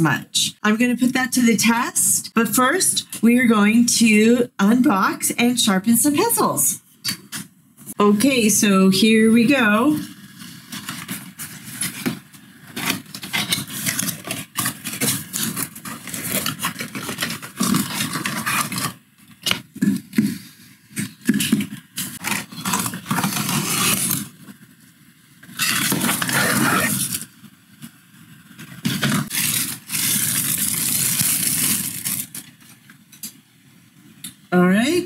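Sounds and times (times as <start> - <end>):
plastic wrapping rustling: 9.7 - 33.4
cardboard box scraping and rustling: 12.7 - 19.0.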